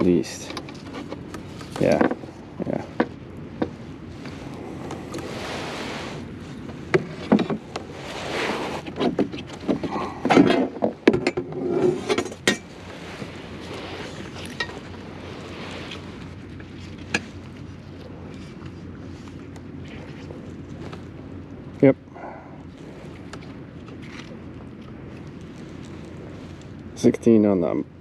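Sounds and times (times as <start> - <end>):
gear rustling: 4.0 - 21.8, 22.6 - 27.0.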